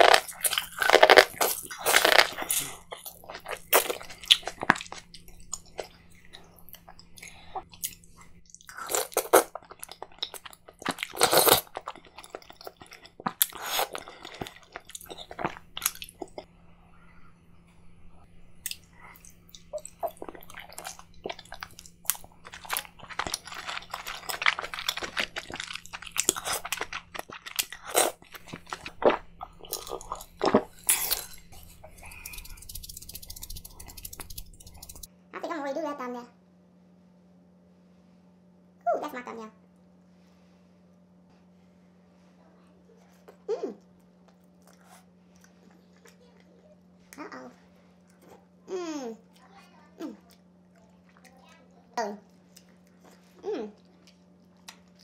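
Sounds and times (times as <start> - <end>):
person chewing and smacking: 0.0 - 16.5, 18.6 - 35.1, 43.8 - 47.3, 52.3 - 55.0
faint low hum: 0.0 - 55.0.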